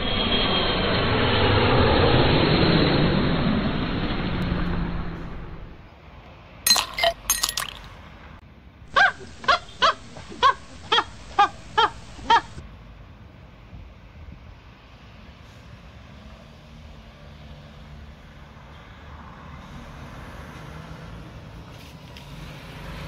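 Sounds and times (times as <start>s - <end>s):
clattering crash: 6.7s - 7.9s
short animal calls: 8.9s - 12.6s.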